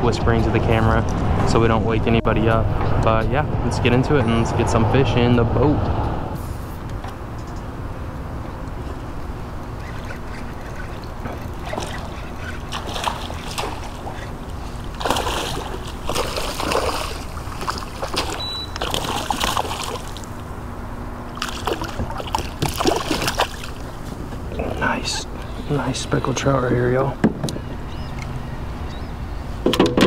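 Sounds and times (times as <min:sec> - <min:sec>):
steady low hum: 0:00.0 - 0:29.7
water splashing and sloshing: 0:08.7 - 0:28.8.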